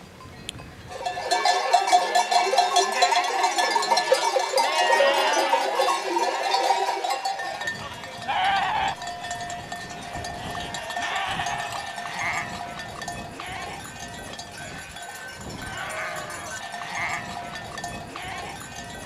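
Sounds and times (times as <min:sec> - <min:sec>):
sheep bells jangling: 0:00.0 - 0:19.0
sheep bleating: 0:02.9 - 0:06.8, 0:07.5 - 0:14.0, 0:15.6 - 0:18.7.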